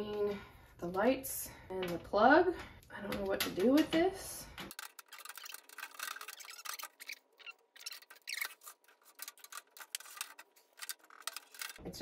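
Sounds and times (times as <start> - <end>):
hands handling light bar: 4.6 - 11.8.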